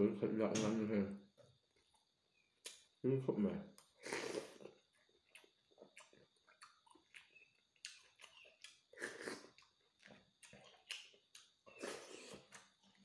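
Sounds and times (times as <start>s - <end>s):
wet chewing and lip-smacking: 3.8s - 13.0s.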